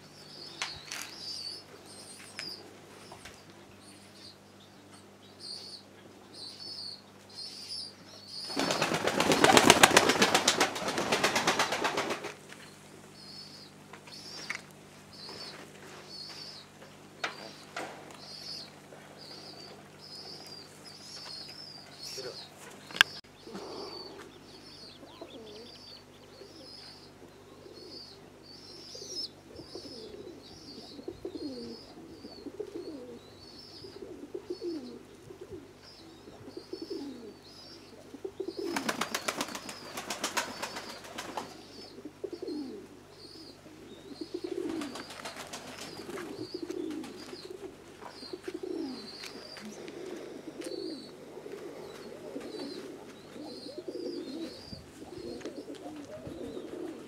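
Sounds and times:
pigeons cooing: 0:07.6 - 0:57.0
wings flapping: 0:08.4 - 0:12.5, 0:38.6 - 0:41.6, 0:44.5 - 0:49.0
small bird chirping: 0:12.6 - 0:35.0, 0:35.8 - 0:49.9.

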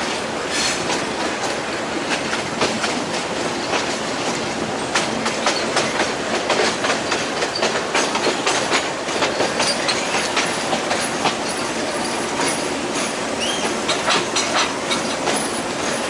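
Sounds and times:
train rumble: 0:00.0 - 0:16.0
train wheels clattering over rail joints: 0:00.0 - 0:16.0.

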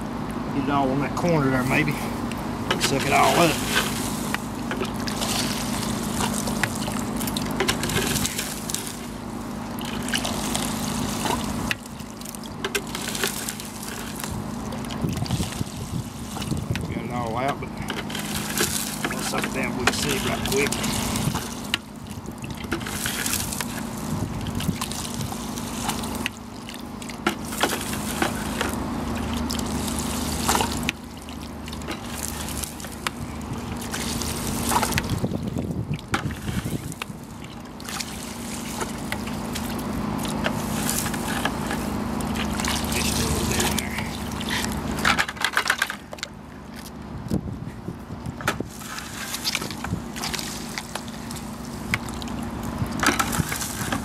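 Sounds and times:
water splashing: 0:01.6 - 0:47.0, 0:48.4 - 0:54.0
tube sucking water: 0:01.7 - 0:45.2, 0:48.0 - 0:54.0.

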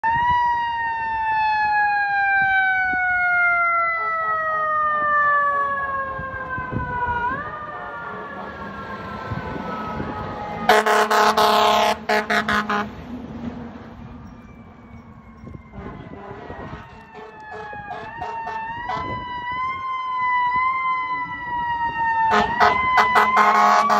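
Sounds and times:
mechanical siren wailing: 0:00.0 - 0:13.0, 0:13.9 - 0:23.9
air horn blasts: 0:10.6 - 0:13.0, 0:15.7 - 0:19.2, 0:22.3 - 0:23.9.

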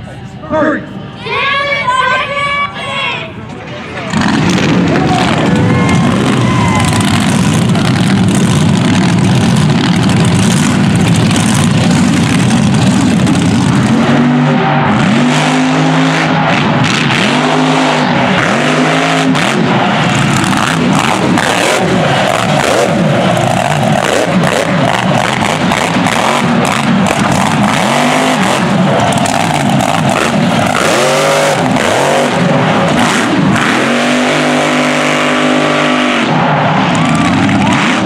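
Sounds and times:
truck engine revving: 0:03.7 - 0:38.0
tyres churning mud: 0:04.1 - 0:38.0.

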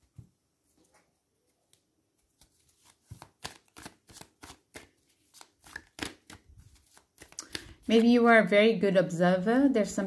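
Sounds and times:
cards shuffling: 0:01.6 - 0:08.1.

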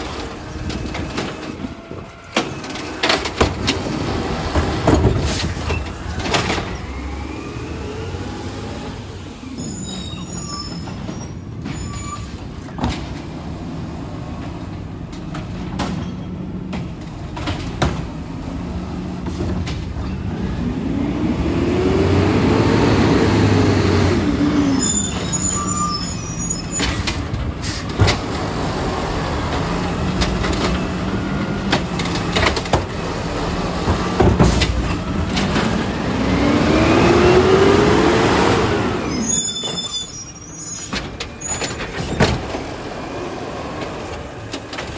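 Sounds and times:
truck engine running and revving: 0:02.7 - 0:09.6, 0:16.5 - 0:25.6, 0:27.2 - 0:39.4.

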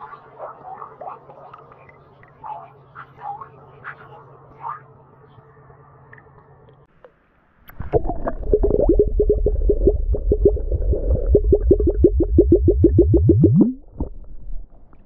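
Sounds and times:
flask glugging underwater: 0:07.7 - 0:14.8.

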